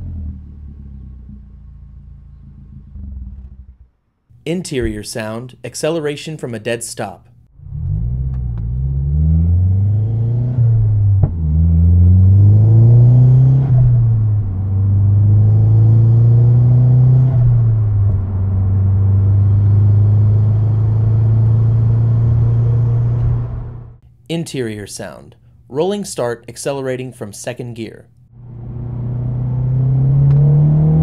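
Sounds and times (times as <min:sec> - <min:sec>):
car engine accelerating: 0:00.0 - 0:04.0, 0:07.5 - 0:24.0, 0:28.4 - 0:31.0.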